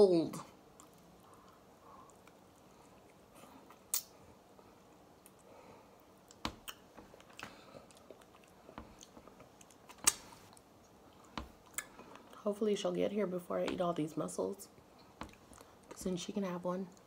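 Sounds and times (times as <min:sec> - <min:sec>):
faint chewing: 0:00.5 - 0:12.4, 0:14.8 - 0:16.0.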